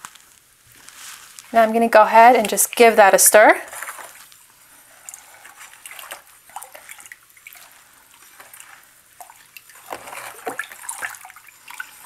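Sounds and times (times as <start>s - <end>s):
water swishing and trickling: 0.7s - 12.0s
small water drips: 2.2s - 3.1s, 3.7s - 12.0s.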